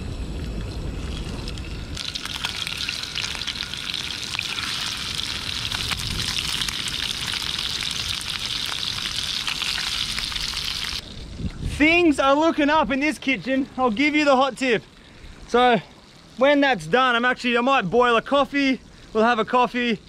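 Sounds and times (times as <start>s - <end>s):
fish sizzling in hot oil: 1.8s - 11.0s.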